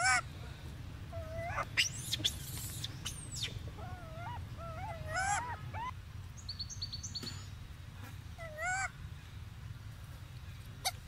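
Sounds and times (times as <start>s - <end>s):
monkeys whining calls: 0.0s - 0.2s, 1.1s - 6.0s, 8.4s - 8.9s
low steady hum: 0.0s - 11.0s.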